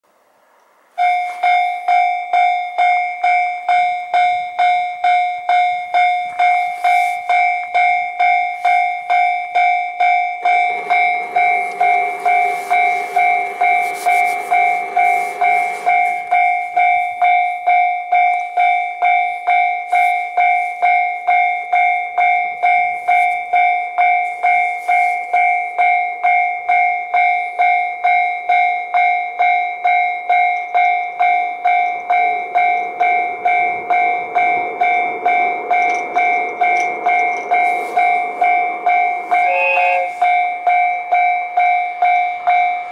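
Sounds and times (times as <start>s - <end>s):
level crossing bell dinging: 1.0s - 42.9s
low rumble: 10.4s - 16.6s, 31.2s - 40.7s.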